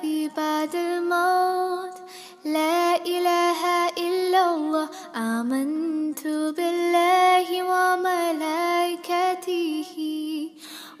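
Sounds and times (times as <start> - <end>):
singer breathing: 2.1 - 2.4, 10.6 - 11.0.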